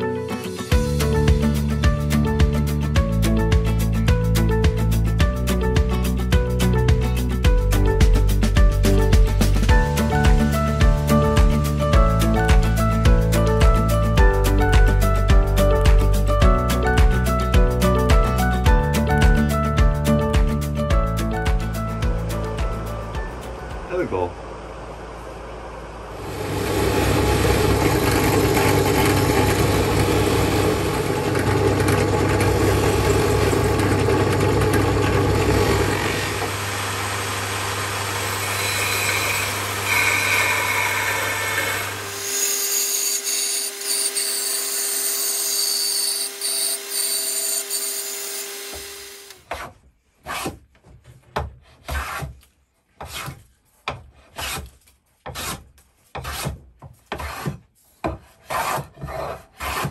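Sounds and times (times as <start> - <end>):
drill press buffing wheel: 26.2 - 49.5
bandsaw cutting wood: 26.2 - 49.7, 58.2 - 59.9
hand plane shaving swish: 48.5 - 50.6, 51.6 - 59.9.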